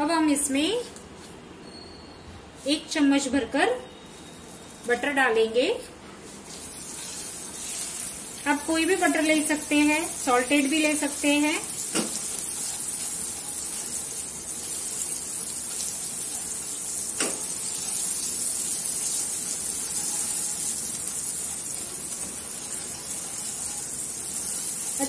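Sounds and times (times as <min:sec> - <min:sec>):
butter sizzling in pan: 0:06.5 - 0:25.0.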